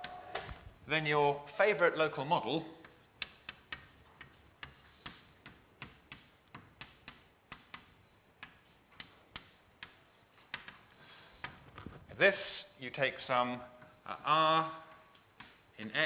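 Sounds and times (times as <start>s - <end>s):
chalk tapping on blackboard: 2.8s - 11.6s, 15.2s - 15.7s.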